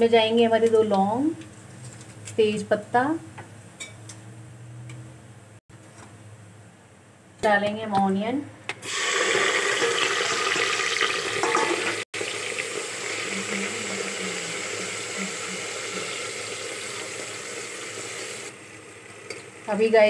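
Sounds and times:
onions sizzling in hot oil: 8.8s - 20.0s.

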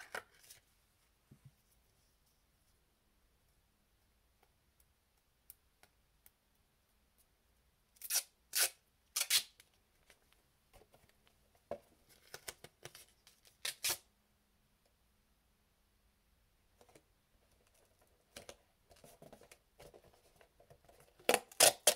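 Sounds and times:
duct tape ripping off roll: 8.0s - 9.6s, 13.6s - 14.1s, 21.3s - 21.9s.

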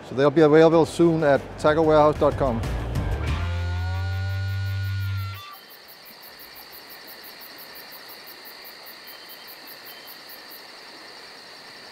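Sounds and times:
high insect trill: 3.7s - 11.9s
crickets chirping: 3.9s - 11.9s.

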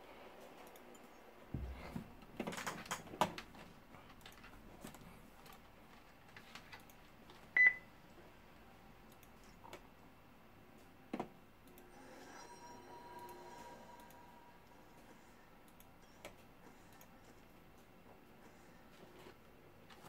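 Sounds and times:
rustling papers: 2.0s - 7.5s.

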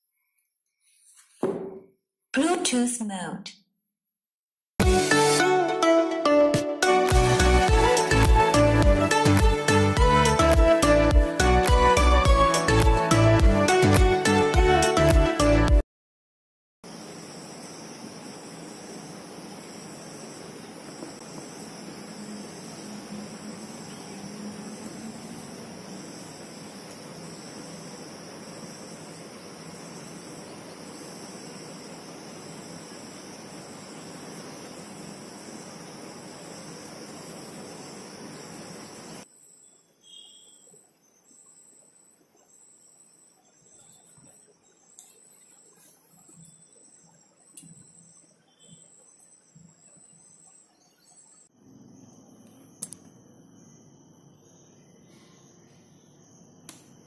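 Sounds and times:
soft knocks on wooden box: 1.4s - 1.8s
high insect-like whine: 7.1s - 12.8s, 16.8s - 57.0s
background hiss: 16.9s - 40.6s
faint high-pitched ringing: 16.9s - 57.0s
sharp click: 52.8s - 53.1s.

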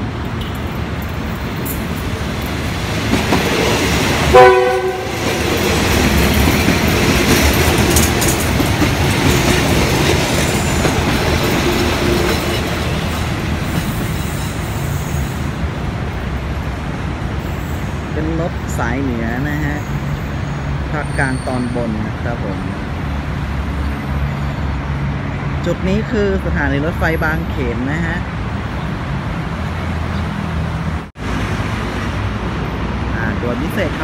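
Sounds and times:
railcar running past on rails: 0.0s - 27.6s
train horn blast: 4.3s - 5.5s.

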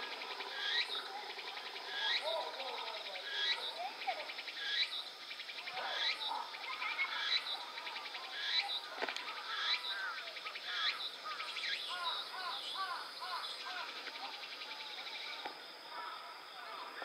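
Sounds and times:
birds calling: 0.0s - 17.0s.

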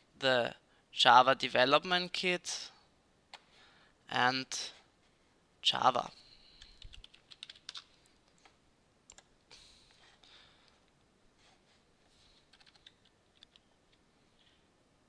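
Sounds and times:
computer keyboard typing: 6.6s - 7.9s, 12.5s - 13.7s.

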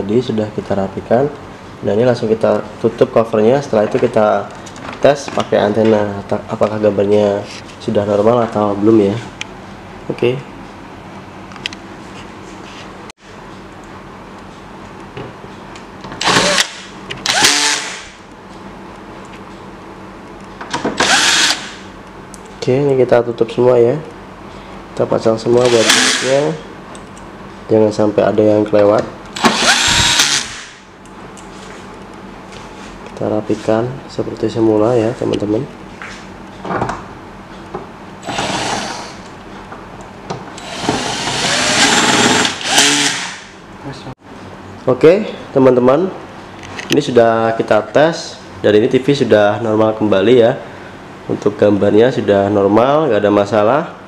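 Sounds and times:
power drill driving screws: 16.2s - 18.1s, 21.0s - 21.8s, 25.6s - 26.4s, 29.4s - 30.8s, 38.2s - 39.2s, 40.6s - 43.5s.

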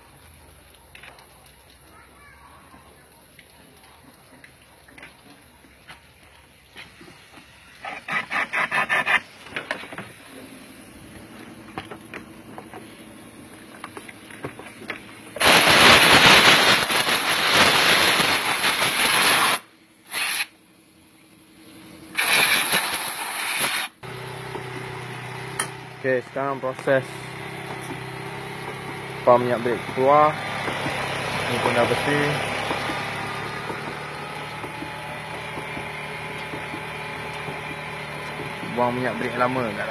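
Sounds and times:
high-pressure water jet hissing: 15.1s - 20.6s, 22.1s - 39.9s
car engine idling: 24.0s - 39.9s.

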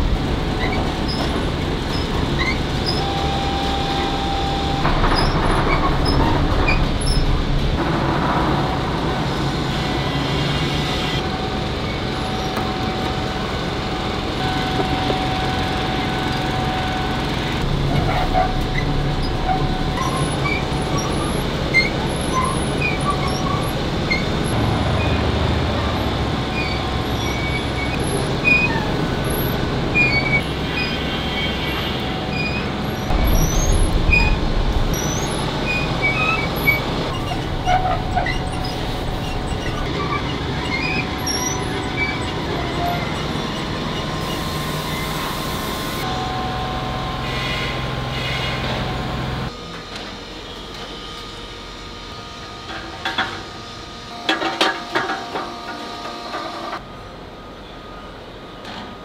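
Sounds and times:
foundry machinery running: 0.0s - 59.0s
thin steady whine: 32.9s - 48.2s.

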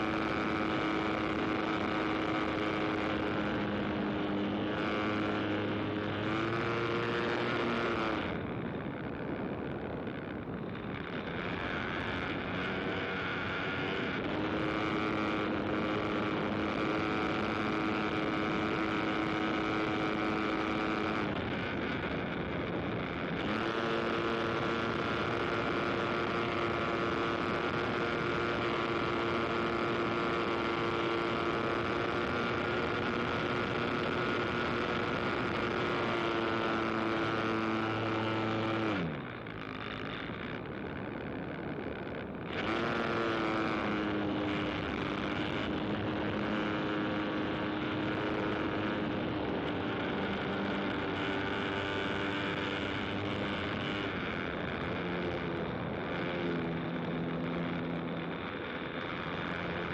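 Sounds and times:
small high-revving engine: 0.0s - 59.9s.

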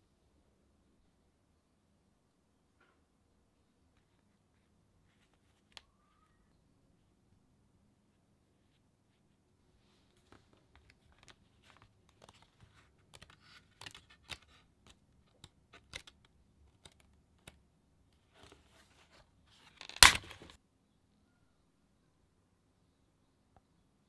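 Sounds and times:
paper pages rustling: 10.0s - 17.6s, 18.2s - 20.6s
paper sheet ripping: 19.6s - 20.6s.

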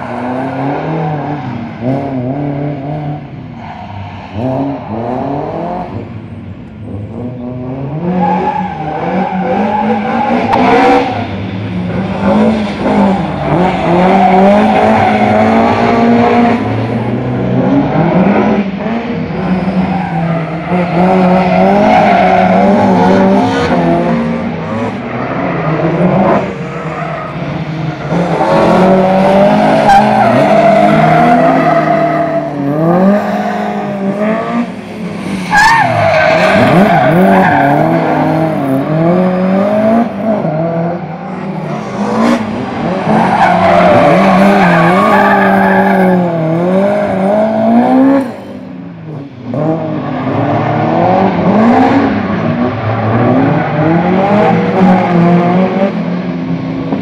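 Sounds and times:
tyres squealing and skidding: 3.5s - 5.2s, 8.0s - 11.6s, 12.3s - 16.1s, 19.4s - 23.8s, 24.7s - 34.2s, 35.1s - 38.8s, 41.0s - 47.3s
car engine revving: 4.1s - 57.0s.

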